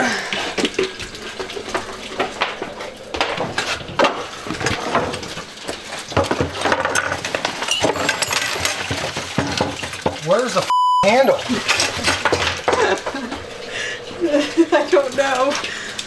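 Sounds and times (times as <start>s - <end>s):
tools and box clattering: 4.0s - 10.6s, 11.5s - 13.1s.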